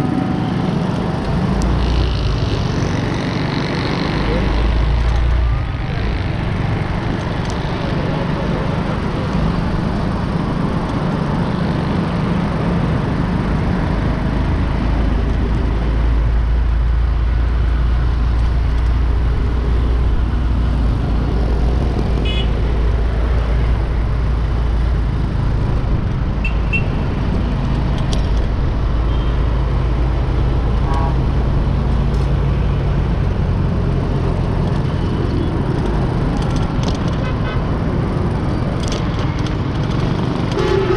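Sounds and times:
road traffic rumble: 0:00.0 - 0:40.9
vehicle horn toots: 0:22.2 - 0:22.5, 0:40.5 - 0:40.9.

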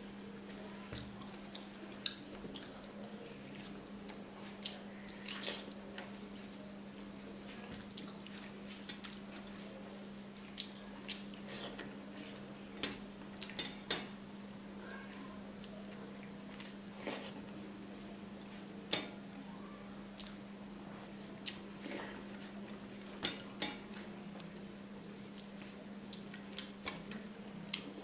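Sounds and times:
chewing: 0:07.5 - 0:09.7, 0:25.2 - 0:28.0.

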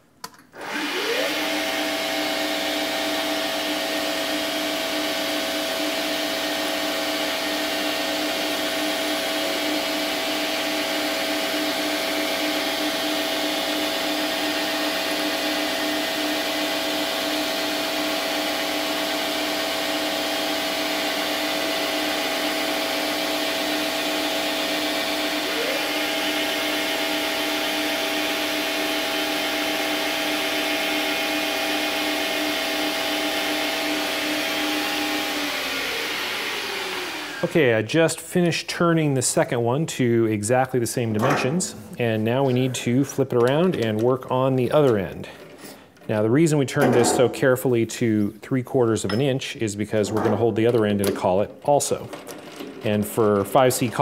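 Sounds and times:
metal lathe whining and humming: 0:00.6 - 0:37.5.

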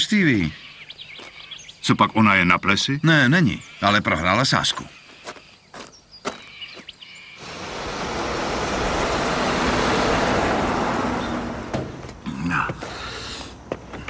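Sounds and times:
vehicle driving past: 0:07.4 - 0:12.2.

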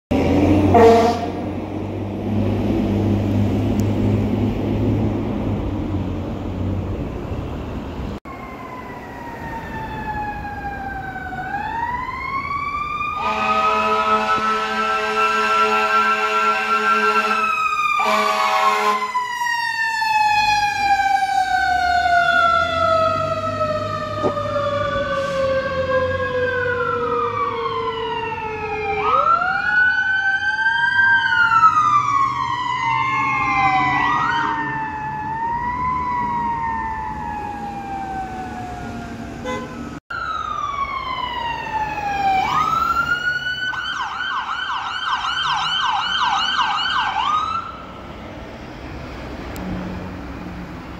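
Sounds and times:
truck engines running: 0:00.1 - 0:50.9
electronic sirens wailing: 0:00.3 - 0:01.6, 0:08.3 - 0:48.0
air horn blast: 0:00.6 - 0:01.5, 0:13.2 - 0:17.4, 0:18.0 - 0:19.1, 0:39.4 - 0:39.9
siren yelp: 0:00.7 - 0:01.5, 0:08.3 - 0:48.0
mechanical siren winding down: 0:08.3 - 0:47.8.

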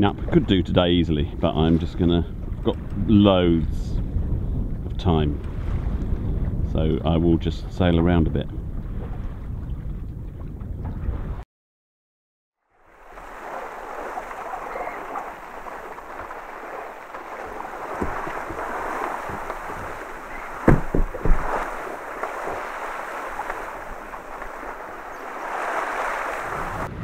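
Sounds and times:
sea waves washing: 0:12.7 - 0:27.0
wind rushing: 0:13.0 - 0:27.0
loud thumps: 0:15.1 - 0:26.2.

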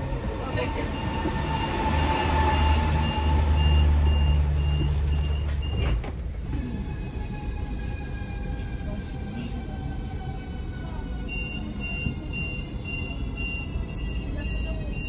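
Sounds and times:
train door warning beeps: 0:00.9 - 0:06.1, 0:11.2 - 0:15.0.

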